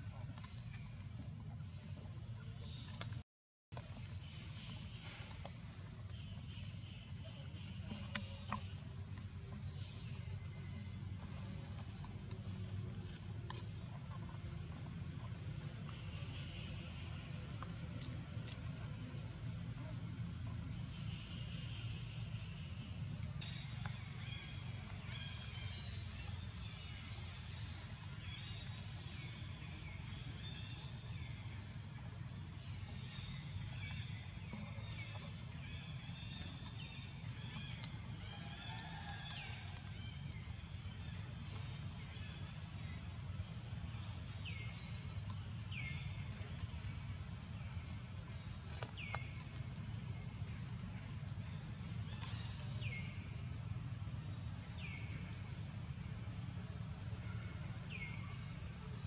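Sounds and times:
high insect drone: 0:14.3 - 0:59.0.

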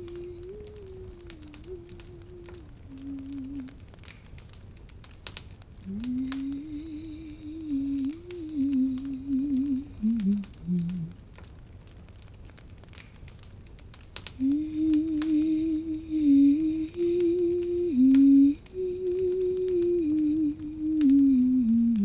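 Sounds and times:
woman humming: 0:00.0 - 0:03.9, 0:05.8 - 0:11.2, 0:14.4 - 0:22.0.

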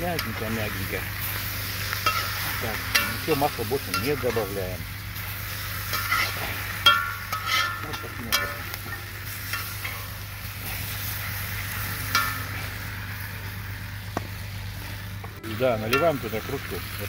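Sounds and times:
food sizzling in a pot: 0:00.0 - 0:17.0
metal spoon clinking against pot: 0:05.9 - 0:10.1.

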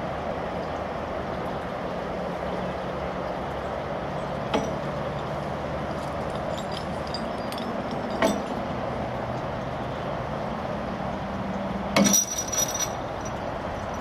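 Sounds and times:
metallic clank of lift bridge: 0:04.5 - 0:05.0, 0:06.1 - 0:08.8, 0:12.0 - 0:14.0
small knocks: 0:04.5 - 0:05.2, 0:06.0 - 0:08.6
ringing clank: 0:06.3 - 0:08.6, 0:12.0 - 0:14.0.

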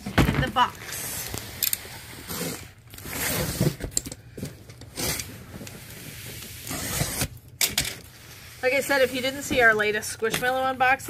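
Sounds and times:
box cutter slitting packing tape: 0:01.3 - 0:04.0, 0:04.8 - 0:05.3, 0:06.5 - 0:07.4.

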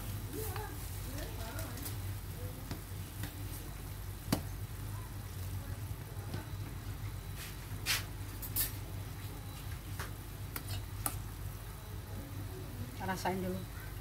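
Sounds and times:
soup simmering in a wok: 0:00.0 - 0:13.0
steady low hum: 0:00.0 - 0:14.0
spatula scraping: 0:10.6 - 0:10.9.

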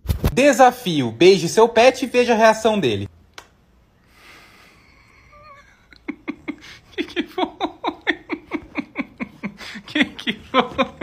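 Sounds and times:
woman laughing: 0:05.1 - 0:11.0.

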